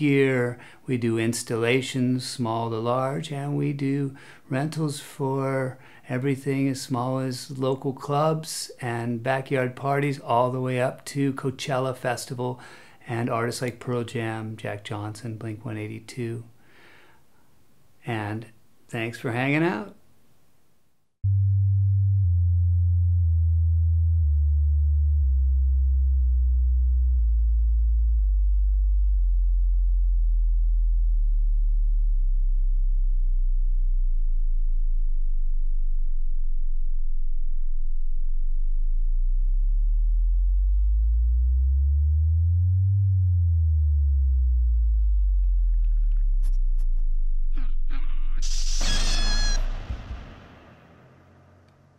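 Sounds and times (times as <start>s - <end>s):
deep electronic sine tone gliding down: 21.2s - 50.8s
low tone sweeping up and down: 21.2s - 51.9s.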